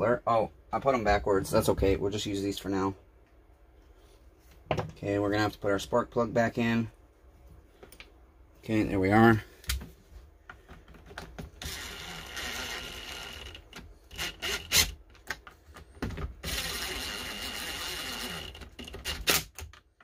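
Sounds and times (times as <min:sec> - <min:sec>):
handling knocks and clicks: 0:09.6 - 0:11.6
cordless drill whining: 0:11.6 - 0:15.0, 0:16.4 - 0:19.5.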